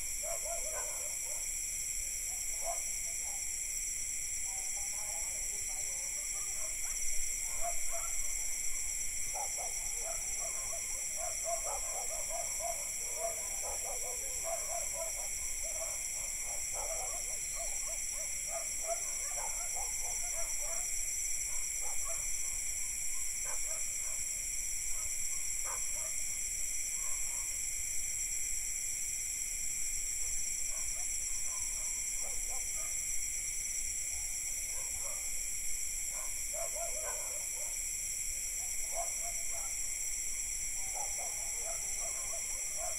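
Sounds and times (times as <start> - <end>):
crickets and cicadas trilling: 0.0 - 42.9
distant dogs barking: 0.2 - 1.5, 2.4 - 3.5, 4.8 - 8.3, 9.3 - 24.3, 24.9 - 26.2, 30.7 - 33.0, 34.2 - 35.3, 36.1 - 37.8, 38.6 - 39.8, 40.8 - 42.9.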